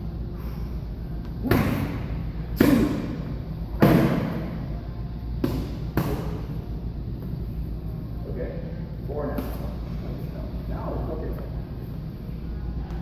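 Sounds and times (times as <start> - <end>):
focus mitts striking boxing gloves: 5.4 - 6.4.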